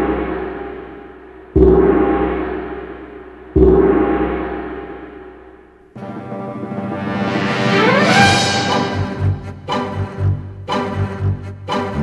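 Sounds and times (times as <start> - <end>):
gong ringing: 6.0 - 9.4.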